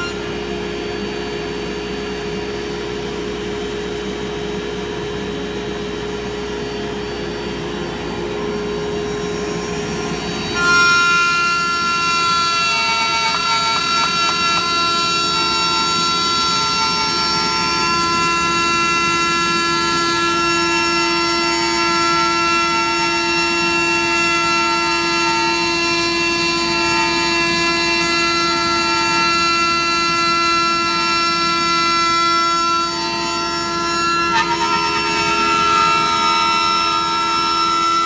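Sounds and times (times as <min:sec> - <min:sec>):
router spindle whine: 0:00.0 - 0:38.0
bit rasping through wood: 0:10.5 - 0:21.0.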